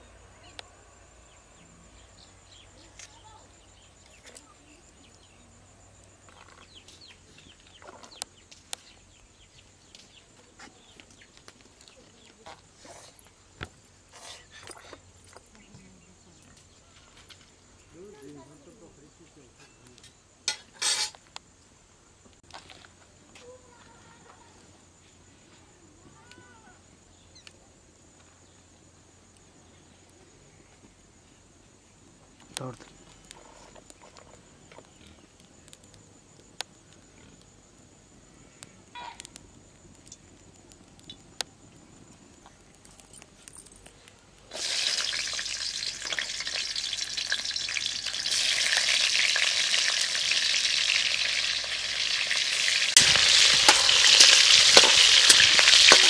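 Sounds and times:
small birds chirping: 0:00.0 - 0:20.4, 0:25.4 - 0:44.5.

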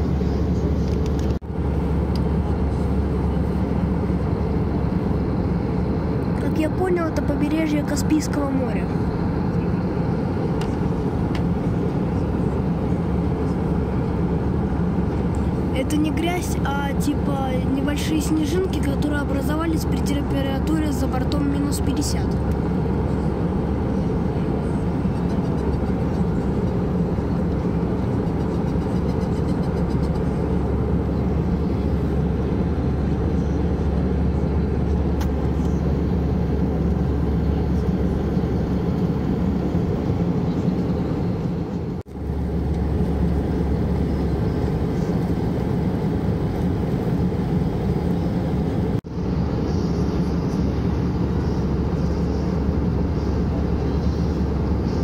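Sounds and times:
airplane cabin engine rumble: 0:00.0 - 0:55.0.

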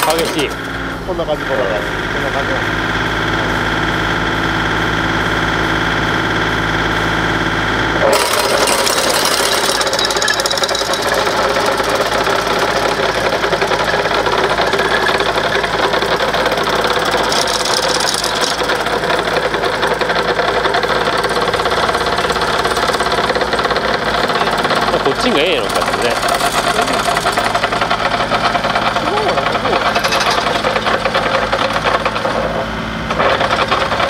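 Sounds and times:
farm machine engine clattering: 0:00.0 - 0:34.0.

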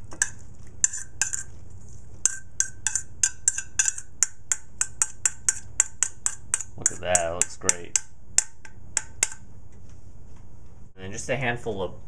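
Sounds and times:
metal spoon scraping metal colander: 0:00.0 - 0:04.2.

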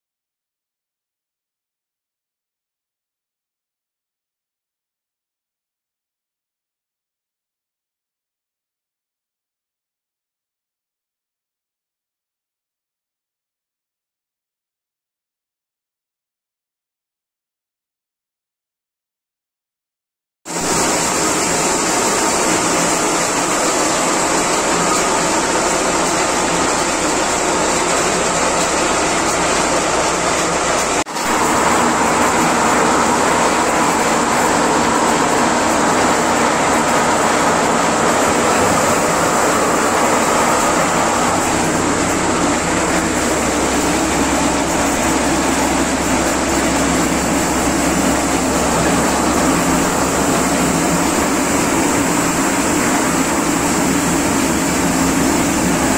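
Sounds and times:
maize thresher running: 0:20.6 - 0:55.9.

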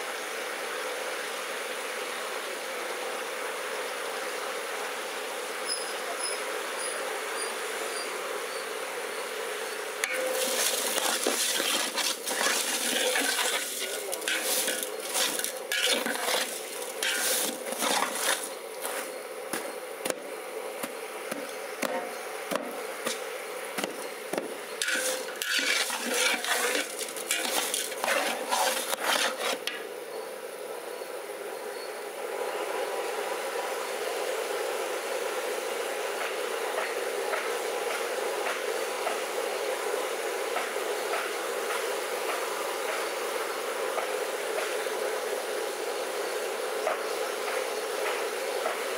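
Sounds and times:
steady background hum: 0:00.0 - 0:48.9
metal ladle scraping a pot: 0:10.0 - 0:19.1, 0:24.8 - 0:29.7.

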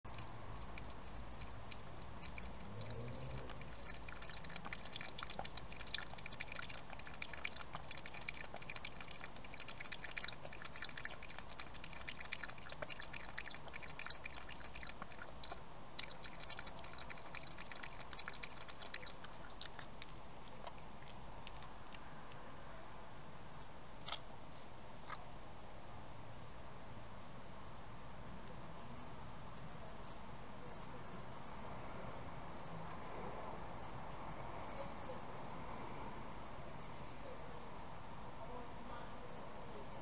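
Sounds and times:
cat eating with mouth clicks: 0:00.0 - 0:22.5.

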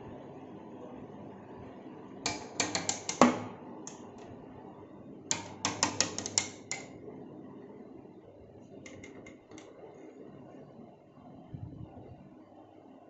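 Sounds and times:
kitten claws tapping on window glass: 0:02.3 - 0:04.2, 0:05.3 - 0:07.0.

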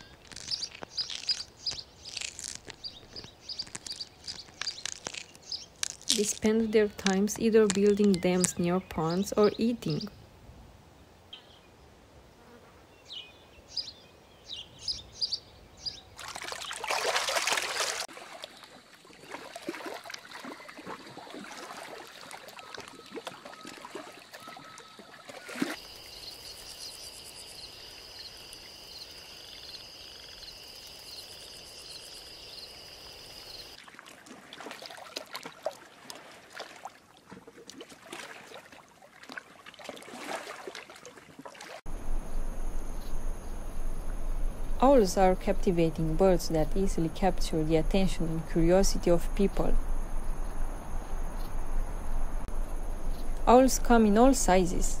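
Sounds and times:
clicks and rustles: 0:00.0 - 0:08.7
trickling water: 0:00.0 - 0:10.0, 0:16.2 - 0:26.2, 0:33.7 - 0:42.0
bird chirps: 0:00.0 - 0:10.2, 0:13.0 - 0:16.8
high insect trill: 0:25.8 - 0:33.8, 0:41.9 - 0:55.0.

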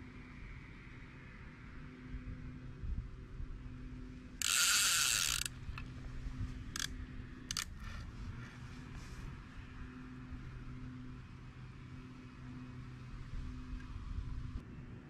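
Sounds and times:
fishing reel ratchet clicking: 0:04.4 - 0:05.9, 0:06.6 - 0:07.8.

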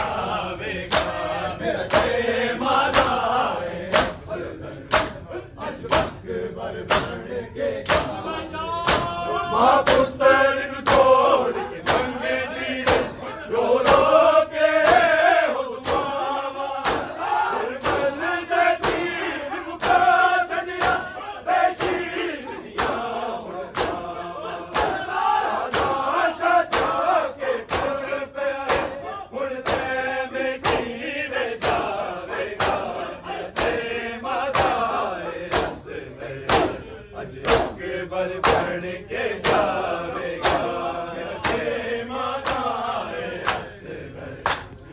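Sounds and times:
men chanting in unison: 0:00.0 - 0:44.9
hands beating chests: 0:08.8 - 0:10.2, 0:10.8 - 0:12.2, 0:12.8 - 0:13.2, 0:14.8 - 0:18.2, 0:18.8 - 0:19.2, 0:19.8 - 0:22.2, 0:24.7 - 0:27.1, 0:28.6 - 0:29.0, 0:32.6 - 0:32.9.

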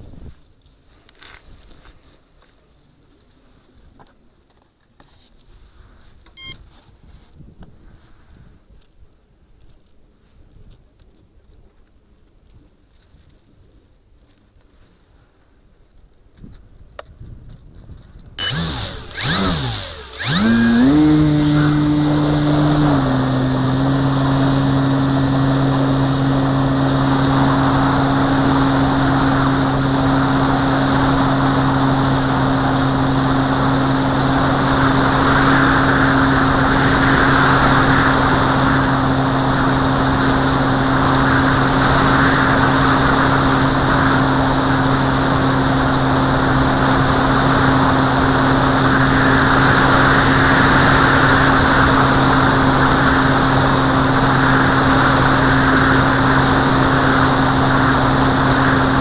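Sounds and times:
model airplane motor and propeller: 0:06.2 - 0:06.6, 0:16.4 - 0:59.0.

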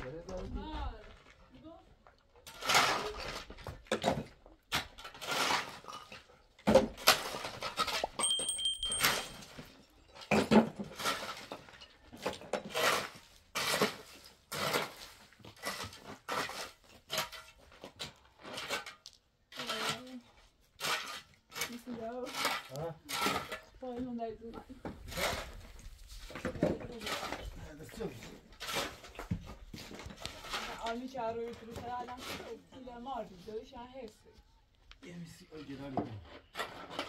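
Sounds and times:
objects clattering and scraping: 0:02.3 - 0:33.3, 0:35.5 - 0:37.0
thin high tone: 0:08.1 - 0:09.6.

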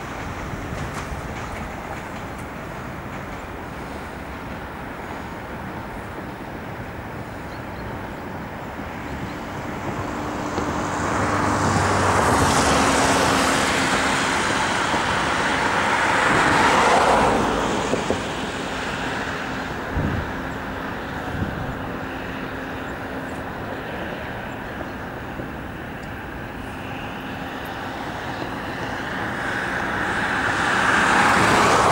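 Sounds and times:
engine passing by: 0:09.2 - 0:31.9.

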